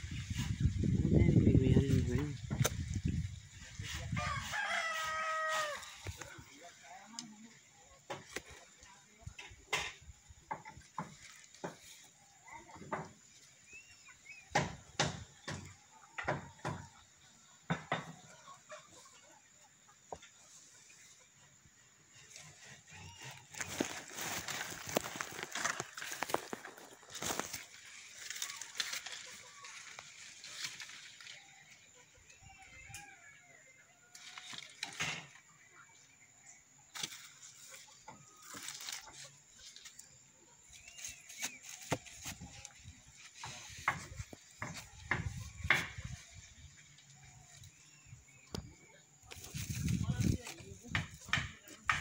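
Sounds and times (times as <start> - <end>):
rustling palm fronds and rope: 0.0 - 19.4, 20.1 - 36.2, 36.8 - 52.0.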